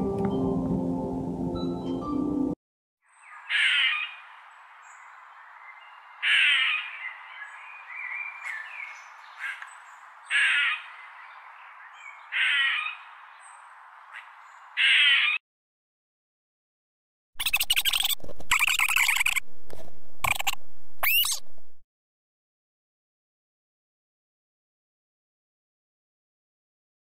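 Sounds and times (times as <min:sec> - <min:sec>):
squirrel alarm calls: 0:03.3 - 0:04.2, 0:06.2 - 0:07.2, 0:10.3 - 0:11.0, 0:12.0 - 0:13.1, 0:14.1 - 0:15.4, 0:17.4 - 0:19.5, 0:20.2 - 0:21.5
faint squirrel chirps: 0:17.4 - 0:19.5, 0:20.2 - 0:21.5.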